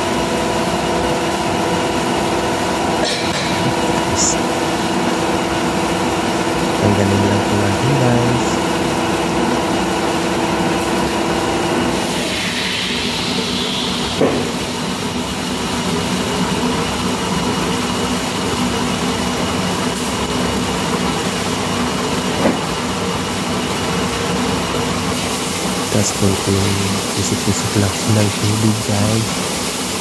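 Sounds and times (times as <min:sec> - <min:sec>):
machinery droning: 0:02.9 - 0:15.1, 0:25.2 - 0:29.4
hiss: 0:11.9 - 0:15.1, 0:25.1 - 0:30.0.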